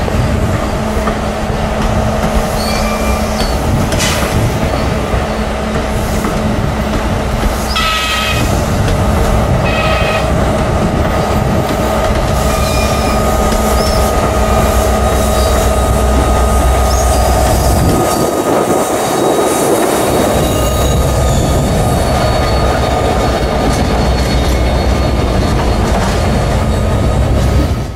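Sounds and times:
train wheels rumbling on rail: 0.0s - 27.9s.

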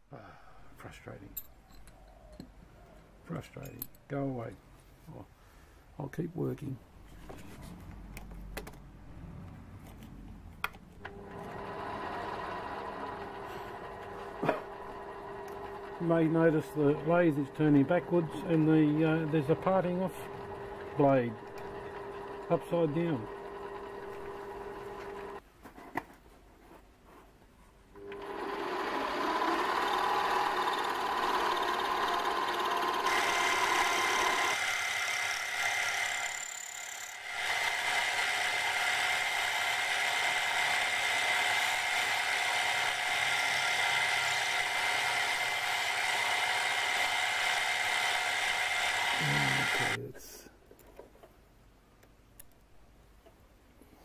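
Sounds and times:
motor winding down: 11.1s - 25.4s, 28.0s - 50.0s
metal lathe machining: 28.2s - 50.0s.

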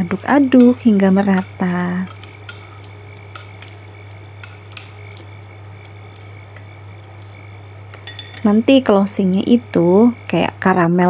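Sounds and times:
steady low hum: 0.0s - 11.0s
chopsticks clicking against pan: 0.1s - 8.5s.

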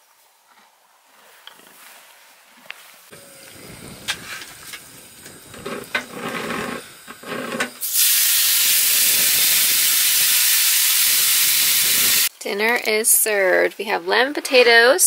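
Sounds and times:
meat sizzling in frying pan: 7.8s - 12.3s.

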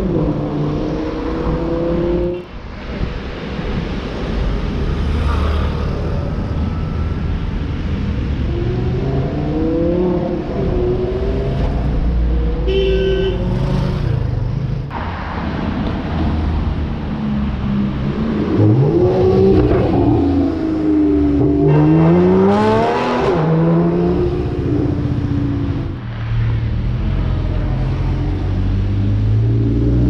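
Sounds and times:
road traffic rumble: 0.0s - 30.0s
car horn honk: 12.7s - 13.5s, 21.6s - 22.3s.

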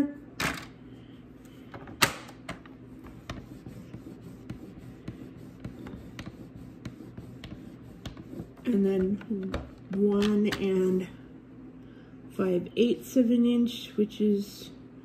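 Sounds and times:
paper brushing: 2.9s - 9.1s.

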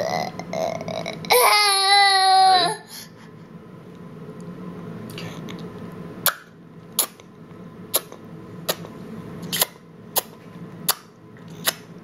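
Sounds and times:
baby clicking with mouth: 10.9s - 11.9s.

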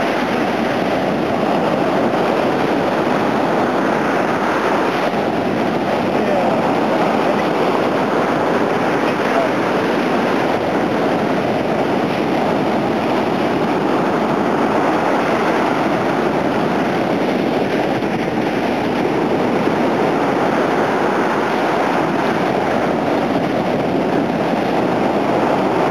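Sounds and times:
waves breaking on beach: 0.0s - 25.9s.

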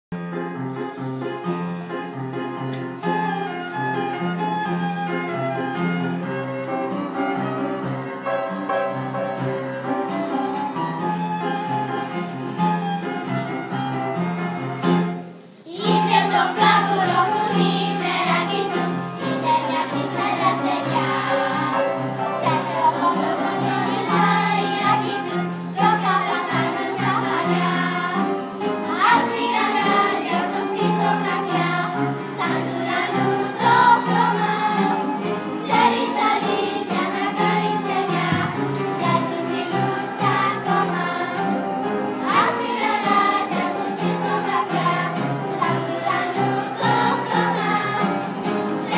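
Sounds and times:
instrumental accompaniment: 0.2s - 48.9s
children's choir singing: 15.5s - 48.9s.

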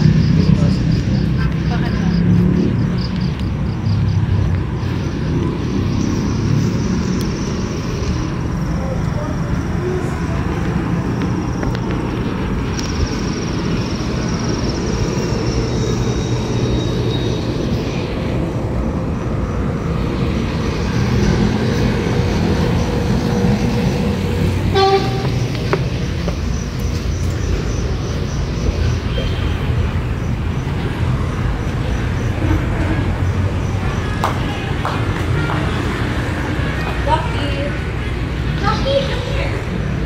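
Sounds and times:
street traffic rumble: 0.0s - 40.0s
vehicle horn toot: 24.7s - 25.4s.

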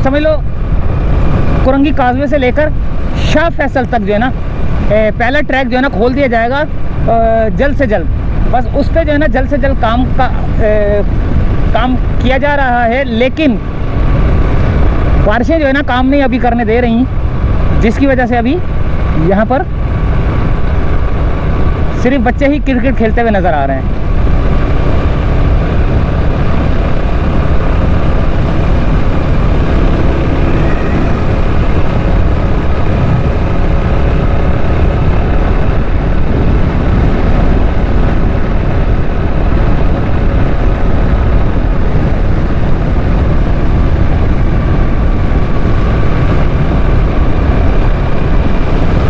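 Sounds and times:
motorcycle engine running: 0.0s - 49.0s
wind on microphone: 0.0s - 49.0s.

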